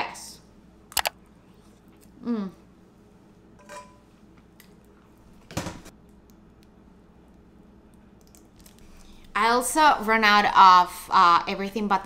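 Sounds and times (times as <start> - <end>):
woman humming mmm: 2.2 - 2.7
kitchenware clattering: 3.6 - 4.0.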